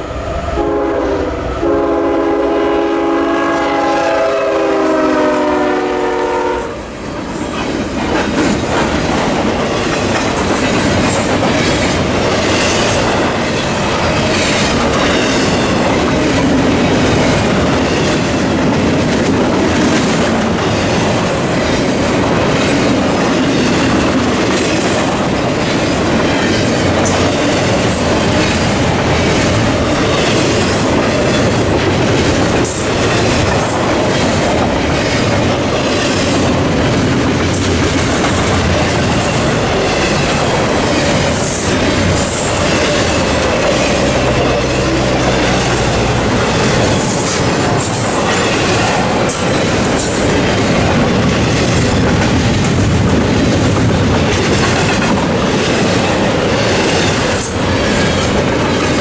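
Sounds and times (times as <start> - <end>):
train wheels rumbling on rails: 0.0 - 59.0
locomotive horn: 0.5 - 6.9
clickety-clack over rail joints: 7.1 - 59.0.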